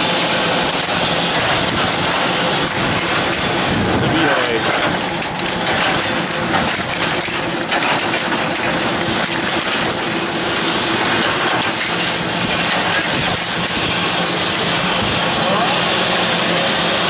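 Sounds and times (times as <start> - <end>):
ski lift humming: 0.0 - 17.0.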